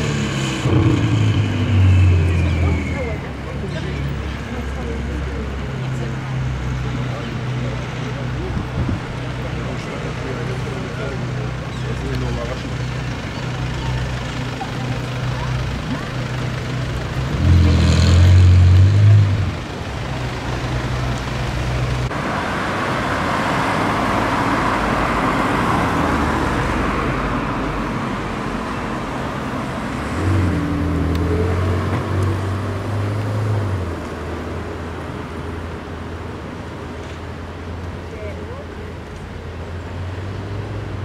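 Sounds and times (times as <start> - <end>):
sports car pulling away: 0.0 - 3.0, 16.0 - 19.9
engine revving: 0.0 - 3.2, 16.1 - 19.8
sports car passing: 0.0 - 3.6
traffic: 0.0 - 41.0.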